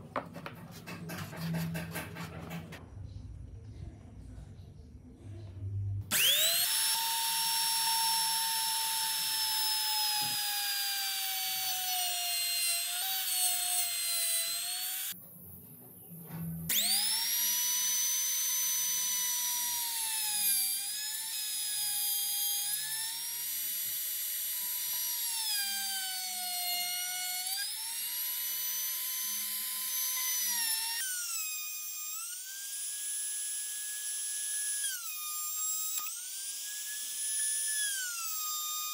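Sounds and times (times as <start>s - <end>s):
electric rotary tool whining: 6.1s - 15.2s, 16.7s - 38.9s.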